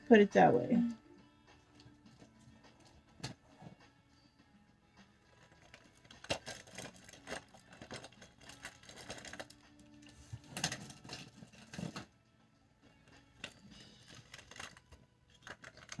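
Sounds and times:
packaging rustling and clattering: 5.2 - 12.2, 13.4 - 16.0.

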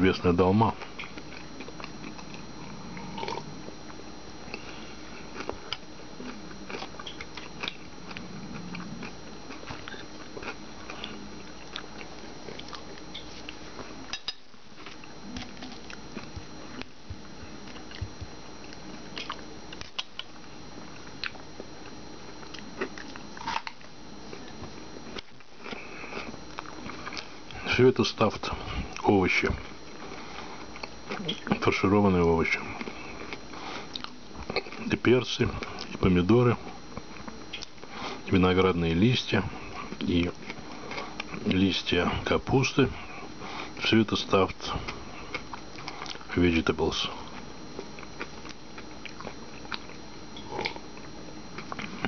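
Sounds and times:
person chewing food: 0.7 - 27.6, 29.6 - 31.6, 32.6 - 36.0, 36.6 - 38.3, 39.5 - 41.6, 44.6 - 46.3, 47.2 - 52.0
mouth clicks and smacks: 19.2 - 20.4.

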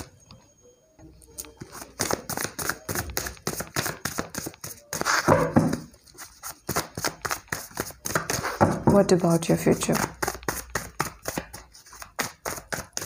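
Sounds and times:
cards being shuffled: 1.4 - 8.7, 9.9 - 13.0.

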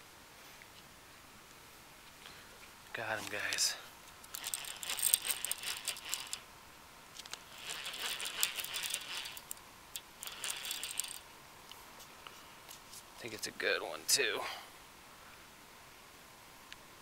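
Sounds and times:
fishing reel clicking whir: 4.3 - 6.5, 7.2 - 11.2.

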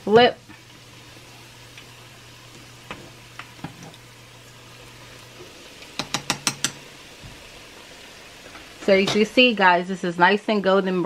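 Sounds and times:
batter sizzling in hot oil: 0.0 - 11.0
utensils clicking against pan: 5.8 - 6.8.

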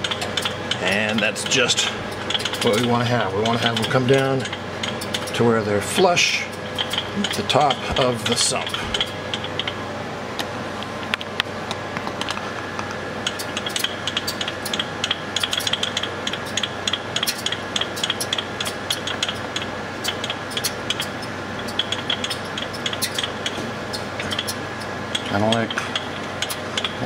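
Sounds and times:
steady machine hum: 0.0 - 27.0.

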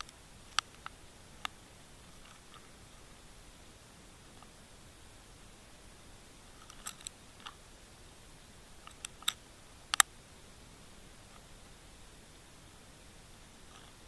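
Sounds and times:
faint hiss: 0.0 - 14.0
sharp underwater clicks: 8.8 - 10.1.

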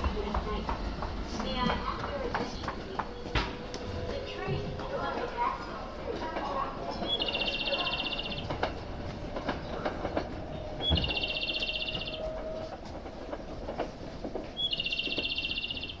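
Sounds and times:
electronic guidance chirp: 7.0 - 8.5, 10.8 - 12.2, 14.6 - 16.0.

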